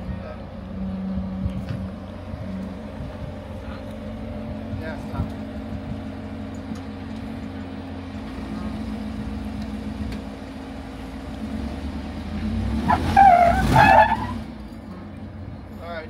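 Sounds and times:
off-road vehicle engine crawling: 0:00.0 - 0:16.0.

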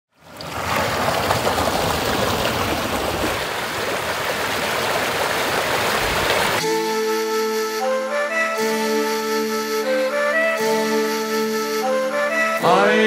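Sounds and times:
stream flowing over rocks: 0:00.1 - 0:06.6.

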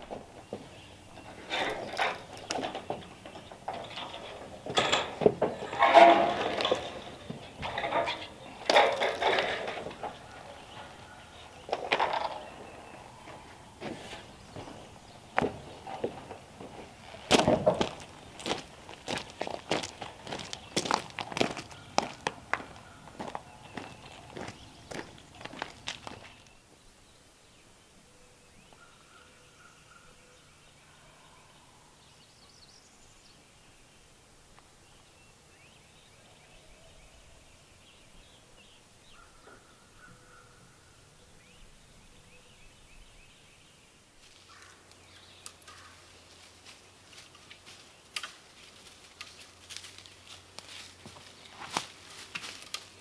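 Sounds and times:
bird calls: 0:00.0 - 0:34.1, 0:34.8 - 0:46.5.

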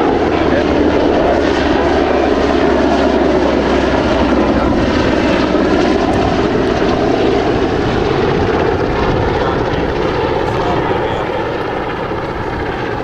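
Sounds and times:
helicopter rotor rumble: 0:00.0 - 0:13.0.

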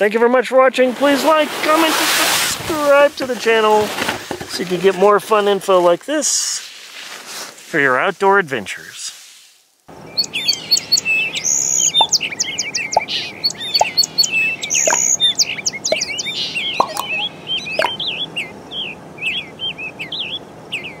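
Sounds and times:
songbirds chirping and twittering: 0:09.9 - 0:21.0.

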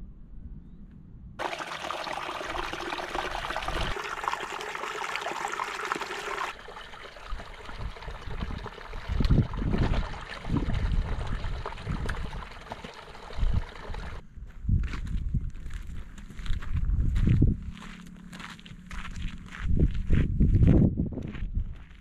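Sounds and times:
stream trickling over stones: 0:01.4 - 0:14.2
wind buffeting microphone: 0:07.3 - 0:12.7, 0:13.3 - 0:17.8, 0:19.2 - 0:21.8.

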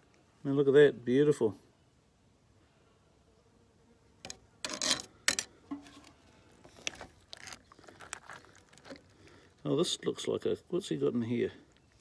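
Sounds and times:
knife scraping and knocking on board: 0:04.3 - 0:06.1.

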